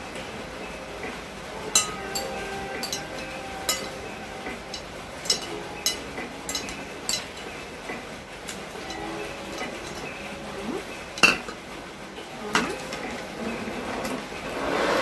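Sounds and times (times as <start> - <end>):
cutlery clinking on ceramic plate: 1.7 - 4.1, 4.7 - 7.5, 11.2 - 11.6.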